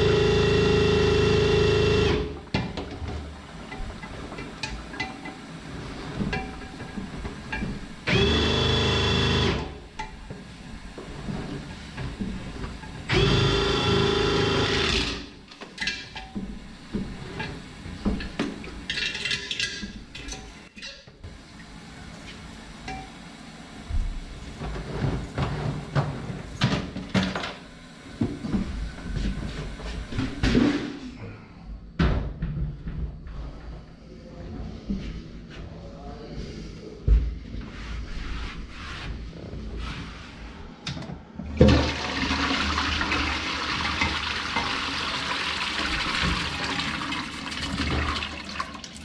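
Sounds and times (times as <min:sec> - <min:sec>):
drain cleaning machine motor: 0:00.0 - 0:02.5, 0:08.0 - 0:09.8, 0:13.0 - 0:15.3, 0:41.6 - 0:49.0.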